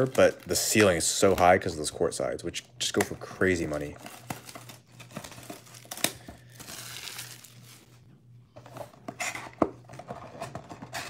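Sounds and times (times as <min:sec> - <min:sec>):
plastic wrap crinkling: 0:00.0 - 0:01.6, 0:02.8 - 0:08.0.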